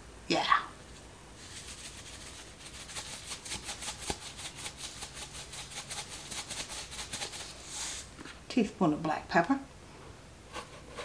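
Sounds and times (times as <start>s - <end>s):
salt shaker rattling: 1.4s - 7.6s.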